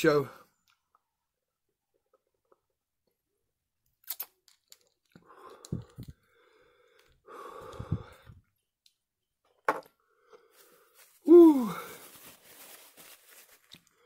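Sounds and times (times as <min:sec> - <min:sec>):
man blowing out heavy breaths: 0:05.2 - 0:08.4, 0:11.3 - 0:12.0.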